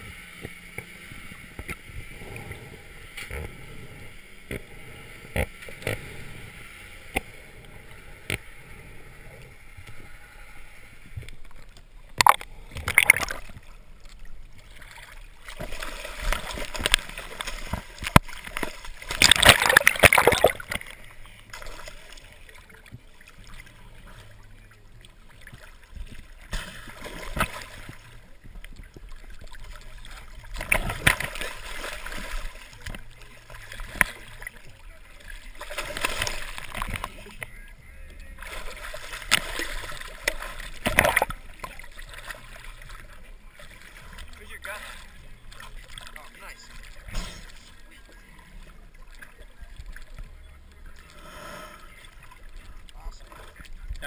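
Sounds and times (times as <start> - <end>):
muffled underwater noise: 0.0 - 54.0
water splashing and sloshing: 0.0 - 54.0
underwater clicks: 0.4 - 3.8, 4.4 - 6.3, 7.0 - 8.5, 11.2 - 21.8, 25.0 - 31.5, 32.1 - 34.6, 35.6 - 37.5, 39.2 - 43.1.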